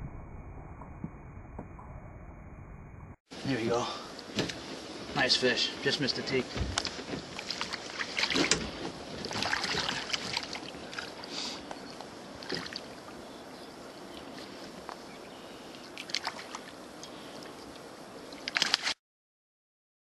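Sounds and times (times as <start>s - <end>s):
hiss of moving water: 3.3s - 18.9s
water splashing: 3.5s - 13.3s, 15.8s - 19.0s.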